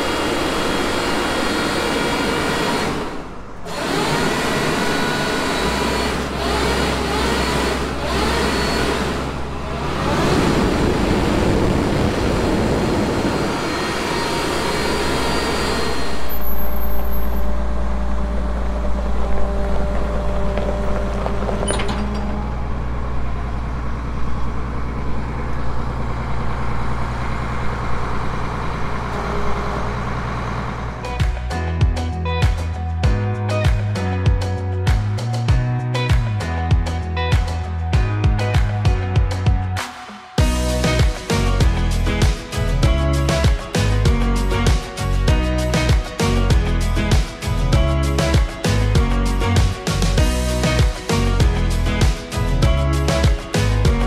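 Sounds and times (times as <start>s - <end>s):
loud rushing air blower: 0.0s - 20.5s
diesel tractor engine running: 0.0s - 33.2s, 40.4s - 54.0s.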